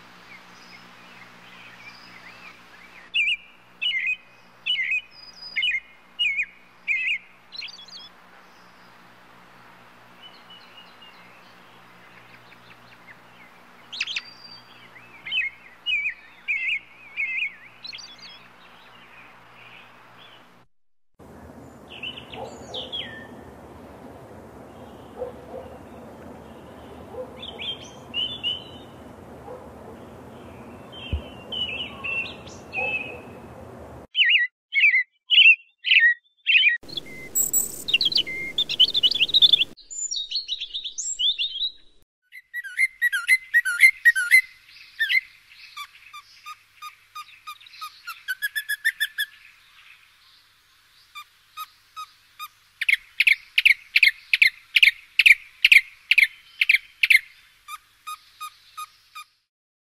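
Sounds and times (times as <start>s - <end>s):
robin singing: 0.3s - 8.9s, 10.2s - 20.5s, 21.3s - 23.5s, 24.6s - 50.4s.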